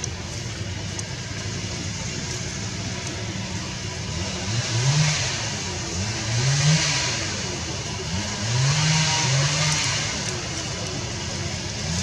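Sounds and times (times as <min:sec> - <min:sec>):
vehicle engine accelerating: 0:00.0 - 0:12.0.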